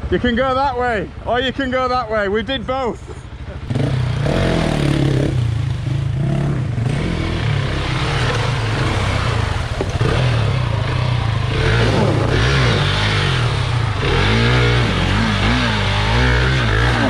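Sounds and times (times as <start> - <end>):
motorcycle engine revving: 3.1 - 17.0
water splashing: 7.8 - 14.7.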